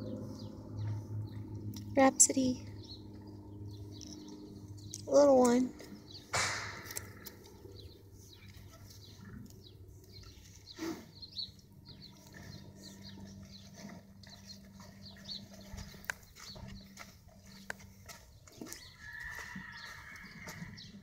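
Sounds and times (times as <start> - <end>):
low steady hum: 0.0 - 19.0
small birds chirping: 0.0 - 21.0.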